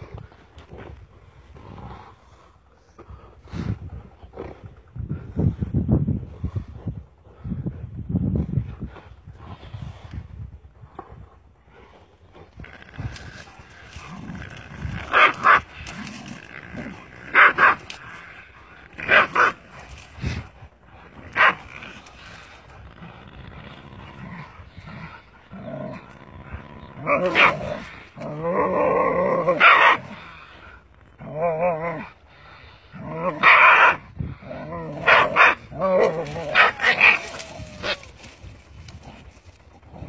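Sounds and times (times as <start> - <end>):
dog growling: 12.4 - 33.5, 34.3 - 40.0
dogs barking: 17.3 - 17.9, 21.3 - 21.6, 29.6 - 30.0, 35.0 - 35.6, 36.3 - 38.0
wavering dog cry: 34.9 - 38.3.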